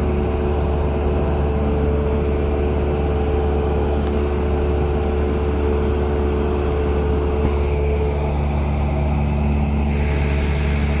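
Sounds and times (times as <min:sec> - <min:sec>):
propeller plane engine drone: 0:00.0 - 0:11.0
hiss of air: 0:09.8 - 0:11.0.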